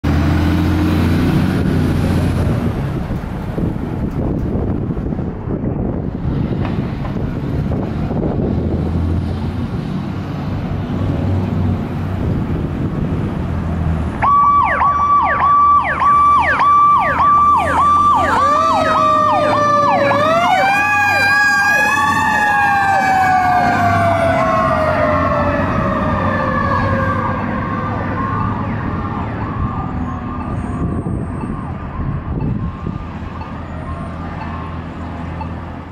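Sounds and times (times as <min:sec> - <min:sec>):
mechanical siren wailing: 0:14.2 - 0:34.8
pulsing siren: 0:14.2 - 0:35.6.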